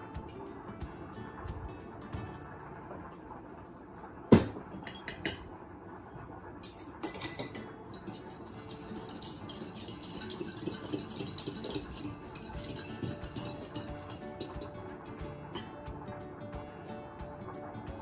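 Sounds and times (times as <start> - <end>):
measuring spoons clattering in bowl: 6.6 - 15.0
metal utensils clinking on ceramic bowls: 6.6 - 15.7
utensil stirring in bowl: 7.2 - 15.8.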